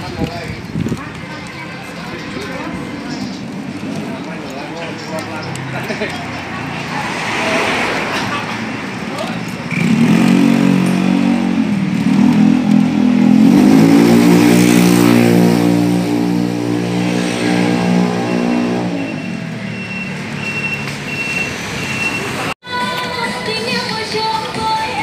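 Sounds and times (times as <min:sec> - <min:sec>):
short high beeps: 0:18.3 - 0:22.4.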